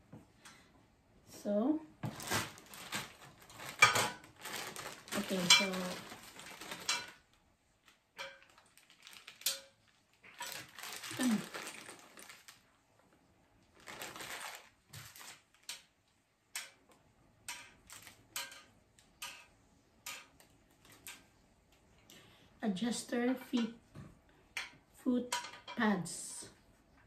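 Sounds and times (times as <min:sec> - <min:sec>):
plastic packets crinkling: 0:02.0 - 0:07.3, 0:07.9 - 0:12.8, 0:13.7 - 0:15.9, 0:17.5 - 0:18.7.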